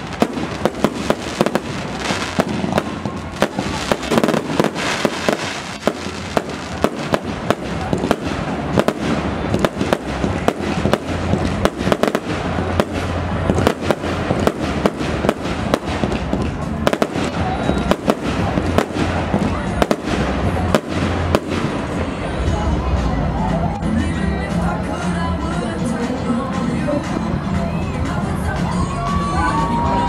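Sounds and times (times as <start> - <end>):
fireworks crackle: 0.0 - 23.1
fireworks bursting with sharp bangs: 0.0 - 23.2.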